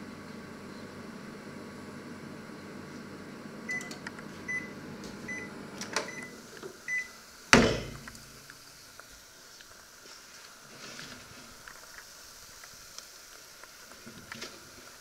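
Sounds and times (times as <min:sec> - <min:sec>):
microwave oven humming: 0:00.0 - 0:09.4
microwave beeping: 0:03.5 - 0:08.2
oven door clicks and clunk: 0:07.6 - 0:08.1.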